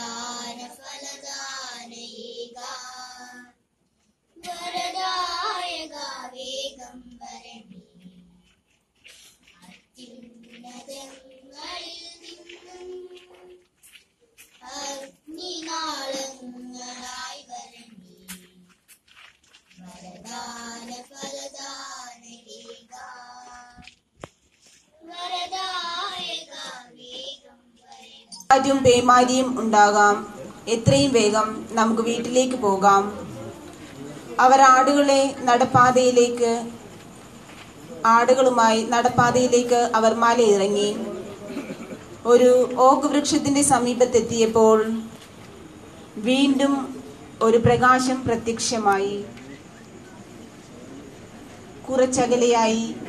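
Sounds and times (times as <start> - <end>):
child singing: 0.0 - 3.6, 4.4 - 8.4, 9.6 - 13.6, 14.6 - 18.7, 19.8 - 23.9, 25.0 - 28.5.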